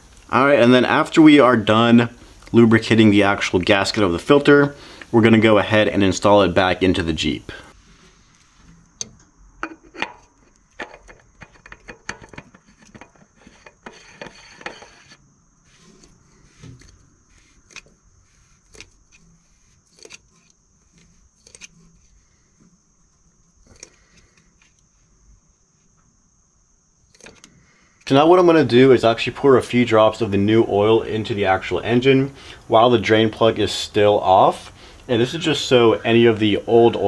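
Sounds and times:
scraping rustle: 7.7s - 9.0s, 10.0s - 26.0s.

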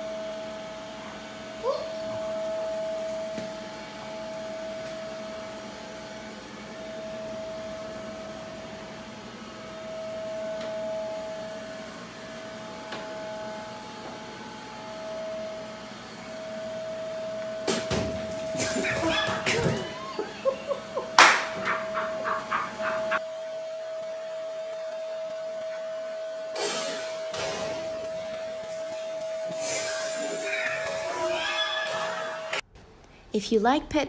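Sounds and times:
robot vacuum cleaner whine: 0.0s - 32.6s.

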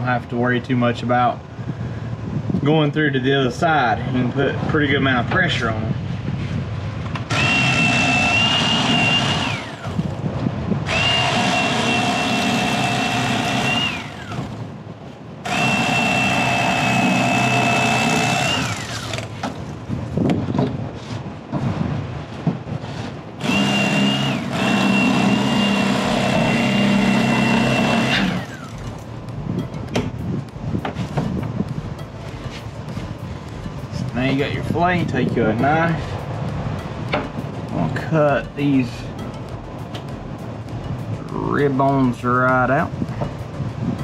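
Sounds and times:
electric fillet knife whining: 7.3s - 10.0s, 10.9s - 14.5s, 15.5s - 19.3s, 23.4s - 28.9s.

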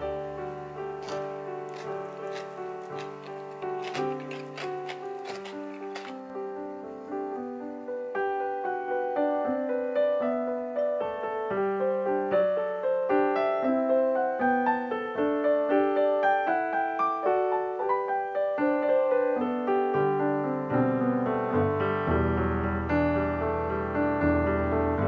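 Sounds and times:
piano melody: 0.0s - 25.0s
low piano bass notes: 19.0s - 25.0s.

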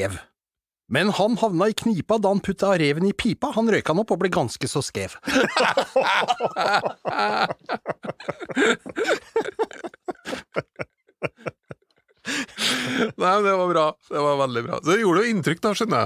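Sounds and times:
men laughing: 5.2s - 13.5s.

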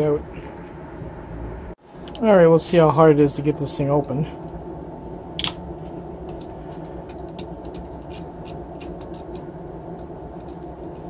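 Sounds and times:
steady machine hum: 0.0s - 11.0s
screwdriver clicking and scraping: 7.1s - 9.4s.

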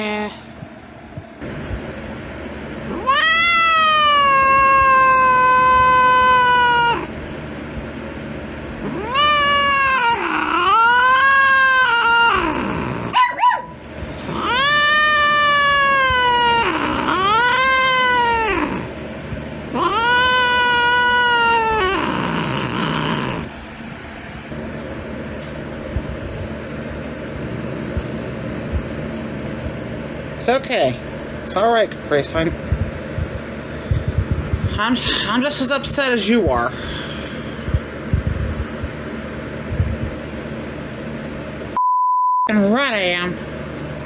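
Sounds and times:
cat yowling: 2.9s - 7.1s, 8.8s - 18.9s, 19.7s - 23.5s.

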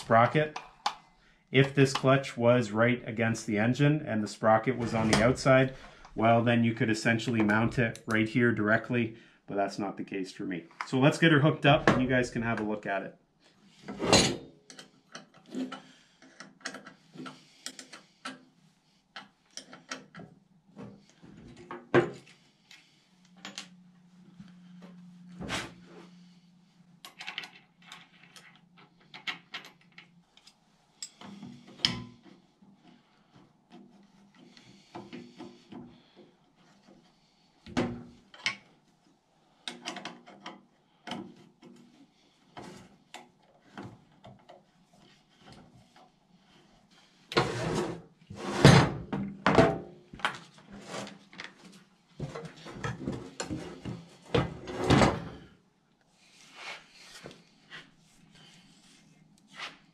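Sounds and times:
metal parts clicking and knocking: 27.0s - 32.1s.

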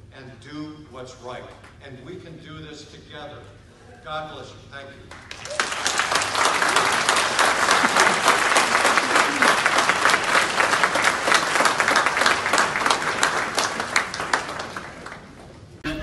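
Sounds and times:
audience applauding: 5.1s - 15.7s.

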